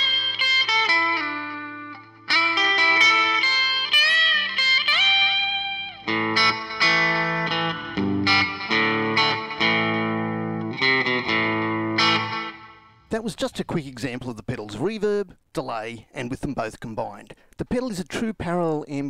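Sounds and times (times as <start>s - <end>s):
electric guitar with reverb: 0.0s - 13.1s.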